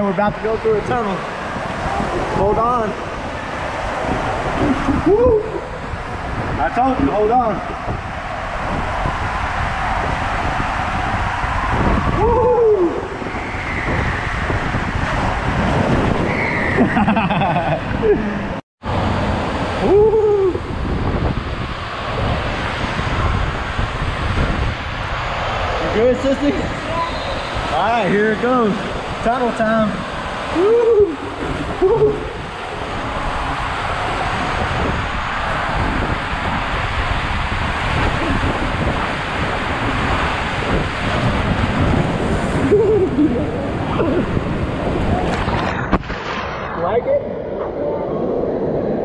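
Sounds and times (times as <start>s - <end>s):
water rushing down slide: 0.0s - 18.2s, 18.9s - 49.0s
wind noise: 0.0s - 49.0s
person shouting whoo: 5.0s - 5.6s, 12.1s - 13.1s, 19.8s - 20.6s, 30.5s - 32.3s.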